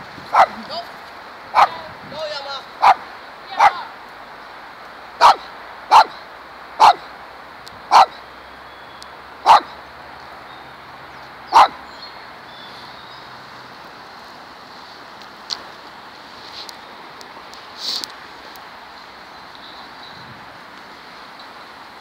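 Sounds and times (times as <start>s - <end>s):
dog barking: 0.3s - 0.6s, 1.6s - 1.8s, 2.8s - 3.0s, 3.6s - 3.9s, 5.2s - 6.2s, 6.8s - 7.1s, 7.9s - 8.2s, 9.4s - 9.8s, 11.5s - 11.8s.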